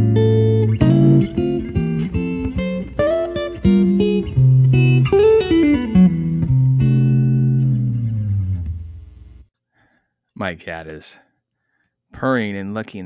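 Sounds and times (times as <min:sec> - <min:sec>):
plucked guitar notes: 0:00.0 - 0:09.0.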